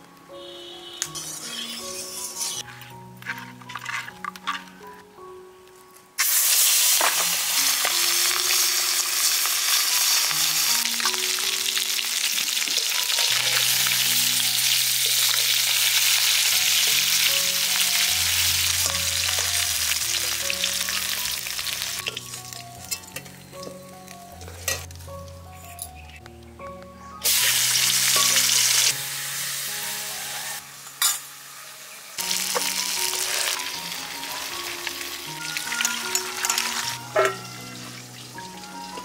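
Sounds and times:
spatula stirring and scraping: 0:01.2 - 0:02.6
fish sizzling in hot oil: 0:06.2 - 0:23.4, 0:27.2 - 0:39.0.

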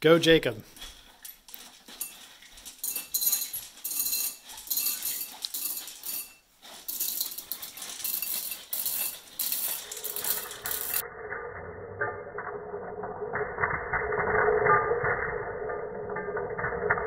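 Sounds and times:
candies clattering into glass bowl: 0:01.3 - 0:11.0.

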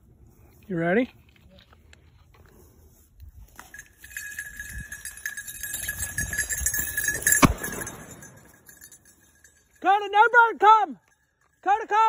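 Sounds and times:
small bell ringing: 0:03.5 - 0:11.9
sharp crack: 0:07.3 - 0:08.2.

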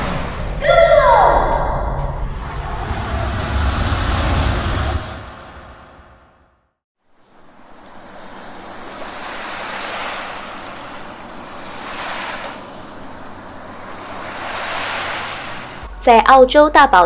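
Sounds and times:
ocean waves washing in: 0:02.0 - 0:15.9.

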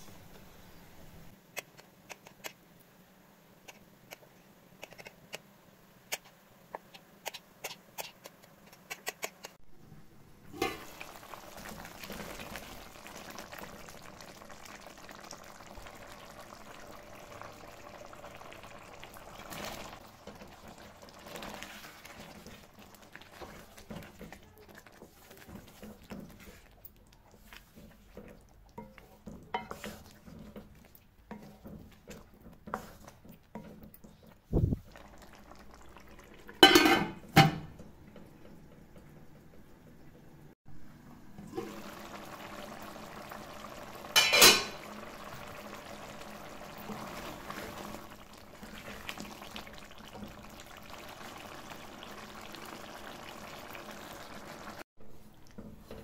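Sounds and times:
sauce bubbling in metal pan: 0:10.4 - 0:39.4, 0:41.4 - 0:56.0.

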